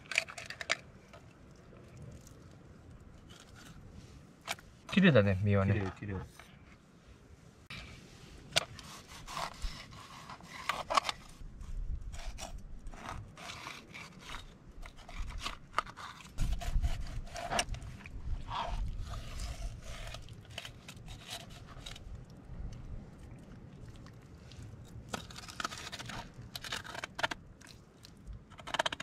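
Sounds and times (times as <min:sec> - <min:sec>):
knife scraping fish scales: 0:08.6 - 0:11.4, 0:12.1 - 0:22.0.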